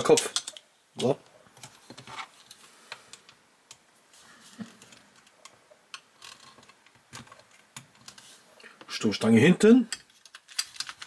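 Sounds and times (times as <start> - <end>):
small parts clicking and tapping: 0.0 - 3.9, 4.8 - 8.2, 9.9 - 11.0.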